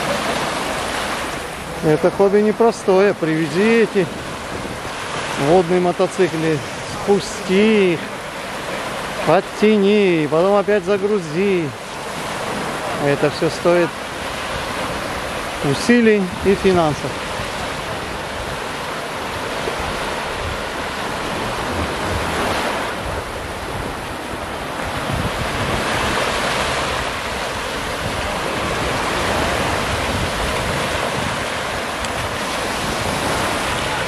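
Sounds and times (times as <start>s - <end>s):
waves washing on a sandy shore: 0.0s - 34.0s
wind rumbling on the microphone: 3.1s - 9.4s, 14.0s - 34.0s.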